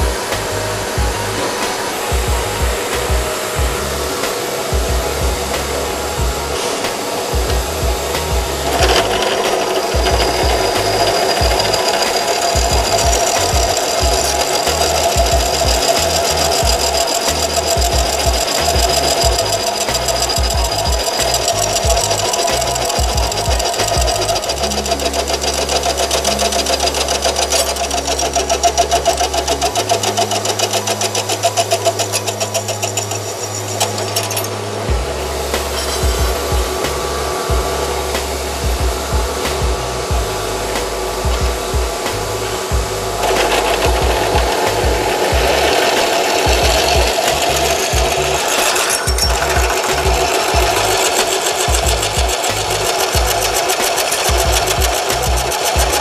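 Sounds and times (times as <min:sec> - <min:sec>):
background music: 0:00.0 - 0:56.0
drill press boring into steel: 0:05.4 - 0:34.6, 0:43.1 - 0:56.0.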